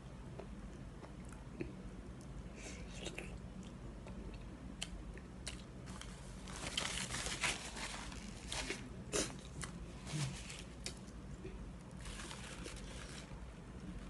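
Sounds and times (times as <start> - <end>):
paper tissue crumpling: 6.4 - 8.8, 12.0 - 13.4.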